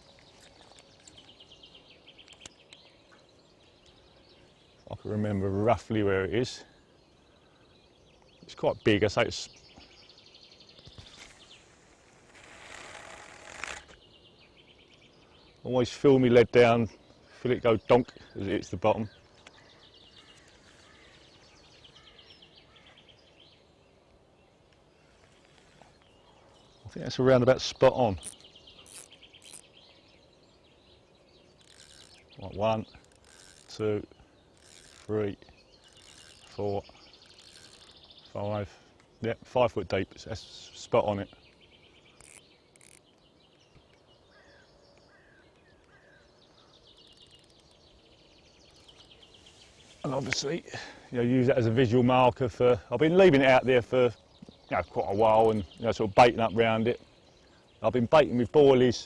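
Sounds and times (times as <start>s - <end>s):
faint birdsong trill: 0.0s - 59.0s
short falling bird calls: 17.0s - 23.6s, 41.4s - 51.2s
slurred bird calls: 17.1s - 23.7s, 25.0s - 39.5s, 40.1s - 59.0s.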